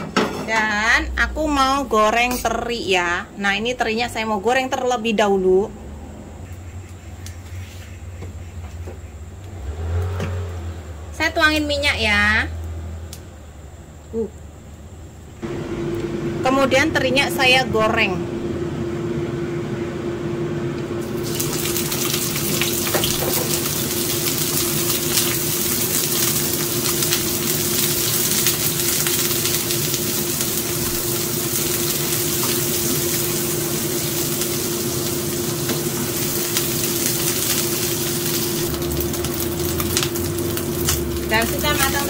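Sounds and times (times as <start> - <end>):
steady low hum: 12.0 - 21.6
fish sizzling in hot oil: 21.0 - 42.0.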